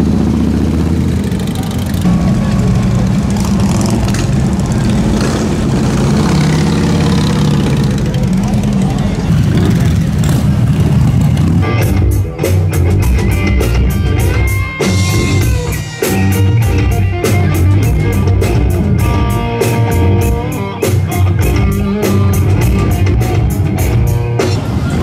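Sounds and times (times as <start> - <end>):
lead guitar bending notes: 0.8 - 24.6
live rock band: 2.0 - 25.0.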